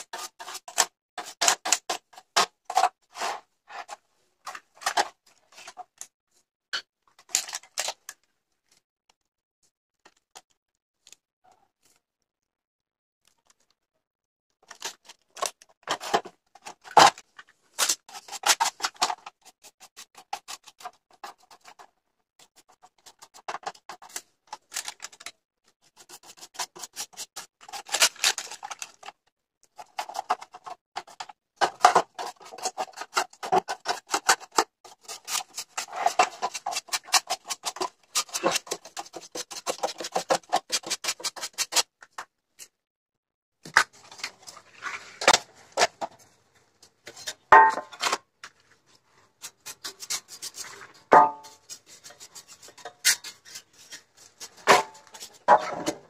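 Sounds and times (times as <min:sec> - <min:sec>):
paintbrush scrubbing metal: 0:32.1 - 0:41.8, 0:49.4 - 0:55.5.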